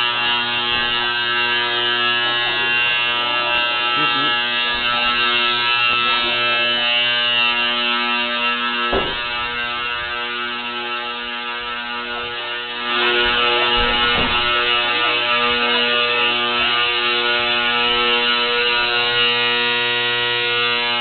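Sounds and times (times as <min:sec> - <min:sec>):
fire alarm horn buzzing: 0:00.0 - 0:21.0
single knock: 0:08.9 - 0:09.3.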